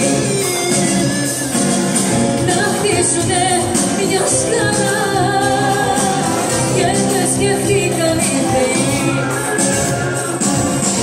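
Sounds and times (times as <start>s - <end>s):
live band playing: 0.0s - 11.0s
woman singing: 2.4s - 9.9s.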